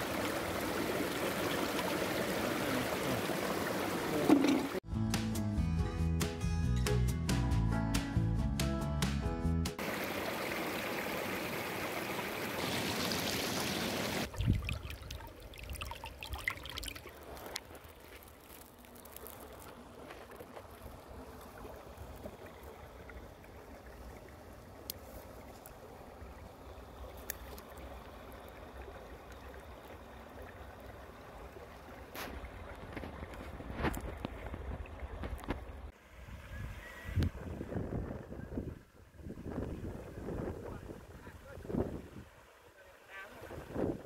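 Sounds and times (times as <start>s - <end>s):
stream water trickling: 0.0s - 4.8s, 9.8s - 36.6s, 39.0s - 44.0s
music: 4.8s - 9.8s
wind rumble on microphone: 32.8s - 42.3s, 43.4s - 44.0s.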